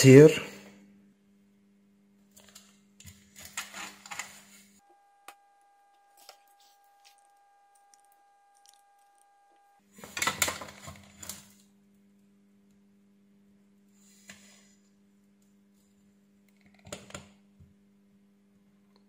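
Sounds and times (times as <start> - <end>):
electrical hum: 0.0 - 19.0
high electronic tone: 4.8 - 9.8.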